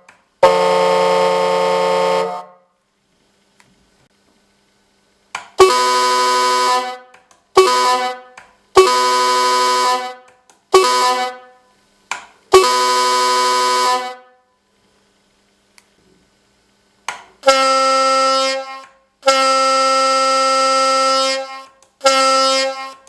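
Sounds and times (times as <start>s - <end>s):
truck air horn blasts: 0.4s - 2.7s, 5.6s - 11.7s, 12.5s - 14.5s, 17.4s - 23.0s.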